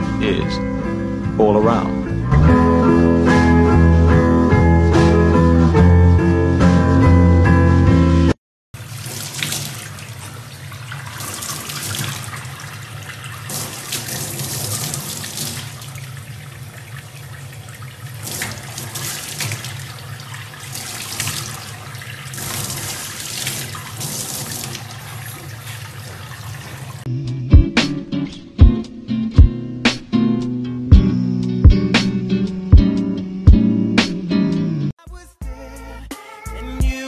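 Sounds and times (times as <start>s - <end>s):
tap water running into sink: 8.8s - 27.1s.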